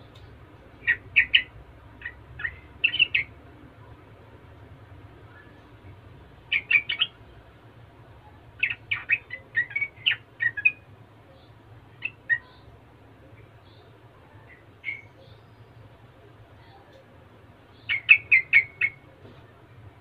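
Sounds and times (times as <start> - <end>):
bird singing chattering phrases: 0.0 - 3.4, 6.5 - 7.2, 8.2 - 19.1.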